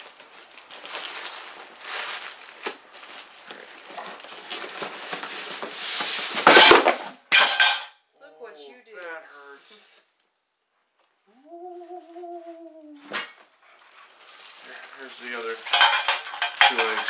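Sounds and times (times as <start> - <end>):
plastic wrapping crinkling: 0.0 - 7.0, 13.0 - 17.0.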